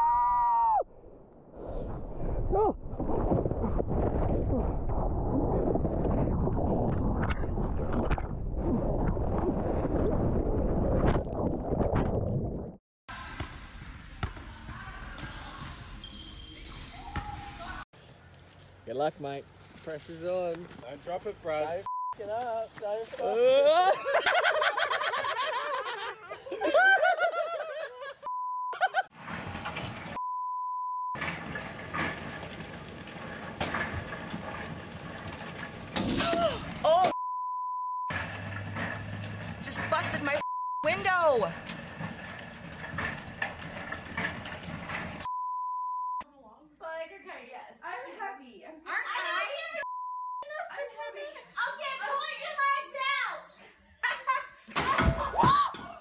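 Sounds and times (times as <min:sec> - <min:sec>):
censor bleeps: 0:28.3 - 0:28.8, 0:30.2 - 0:31.2, 0:37.2 - 0:38.1, 0:40.4 - 0:40.9, 0:45.3 - 0:46.2, 0:49.8 - 0:50.4.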